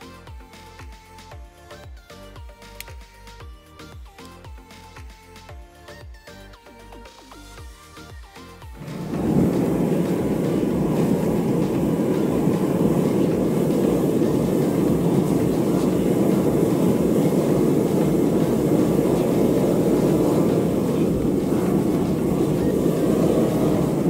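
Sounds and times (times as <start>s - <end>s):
gas burner flame roaring: 8.7s - 24.0s.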